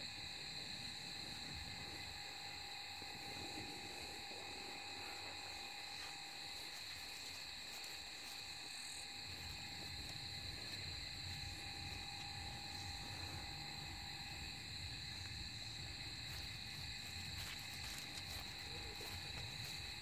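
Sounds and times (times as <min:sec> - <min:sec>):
night insects droning: 0:00.0 - 0:20.0.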